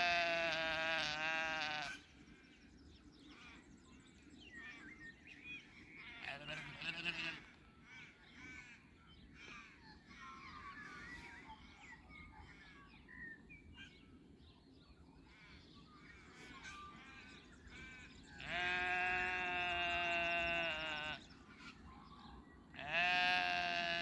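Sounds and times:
sheep bleating: 0:00.0 - 0:02.0, 0:06.1 - 0:07.6, 0:18.4 - 0:21.3, 0:22.8 - 0:24.0
small birds chirping: 0:00.0 - 0:24.0.

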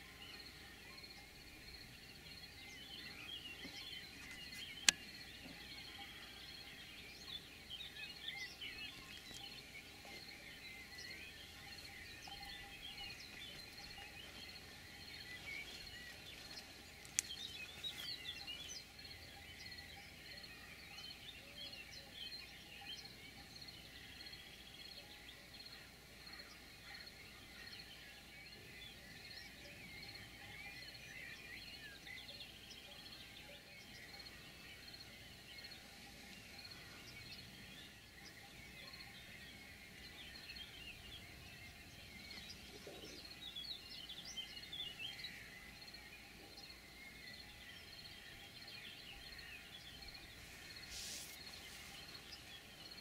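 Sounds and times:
small birds chirping: 0:00.0 - 0:53.0.

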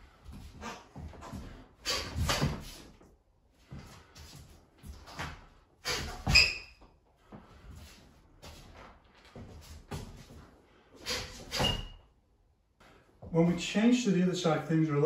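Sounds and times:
stick swishing: 0:00.6 - 0:02.9, 0:05.8 - 0:06.5, 0:11.0 - 0:11.9
sharp thump with squeak: 0:01.9 - 0:02.7, 0:05.9 - 0:06.8, 0:11.0 - 0:12.0
footwork shuffling on wooden floor: 0:07.2 - 0:10.6.

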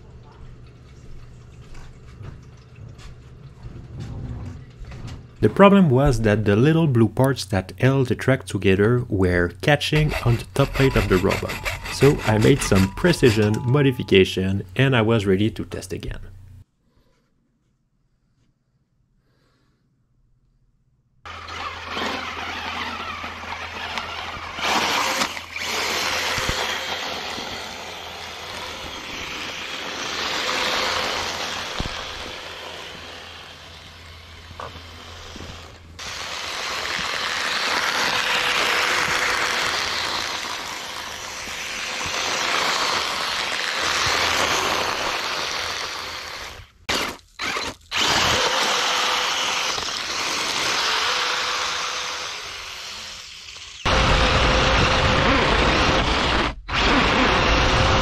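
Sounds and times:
electric motors whining: 0:10.0 - 0:14.1, 0:21.3 - 0:58.0.

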